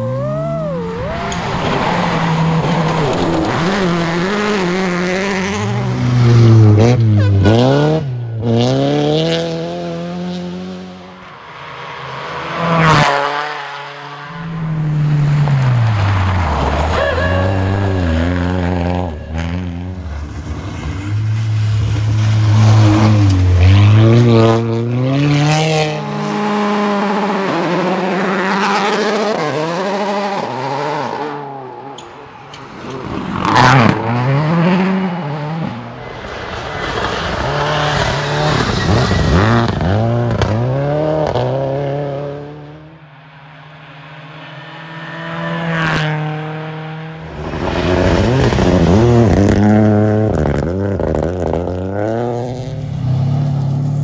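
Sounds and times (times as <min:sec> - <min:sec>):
rally car engines revving: 0:00.0 - 0:54.0.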